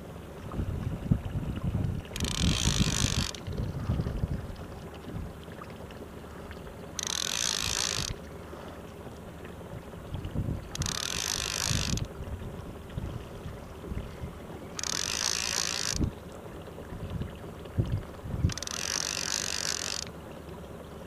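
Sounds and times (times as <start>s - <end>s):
outboard motor running: 0.0s - 21.0s
wind on microphone: 0.4s - 5.4s, 7.6s - 8.2s, 10.0s - 14.5s, 15.6s - 16.2s, 16.9s - 19.0s
fishing reel cranking whir: 2.2s - 3.6s, 7.0s - 8.2s, 10.7s - 12.1s, 14.7s - 16.1s, 18.4s - 20.1s.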